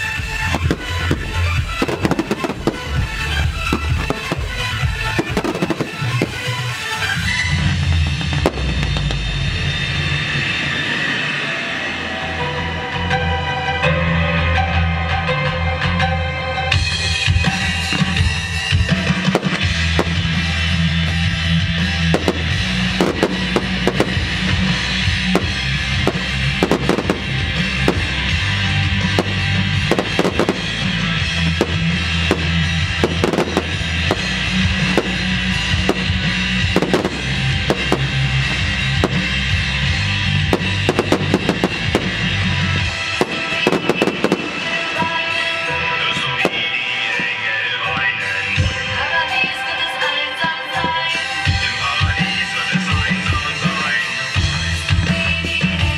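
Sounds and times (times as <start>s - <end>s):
crackling firework stars: 0.0s - 13.3s, 17.3s - 55.8s
loud music with heavy bass: 0.0s - 55.9s
firework shells bursting: 0.4s - 7.2s, 19.0s - 20.5s, 22.1s - 39.6s, 40.4s - 45.4s.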